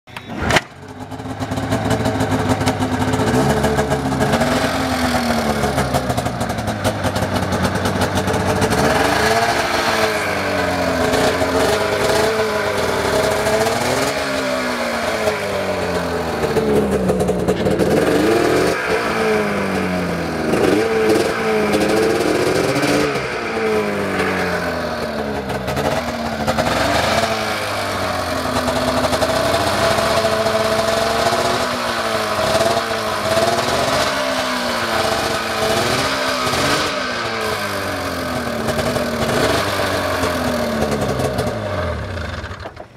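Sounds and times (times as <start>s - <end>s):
snowmobile engine idling and revving: 0.3s - 42.9s.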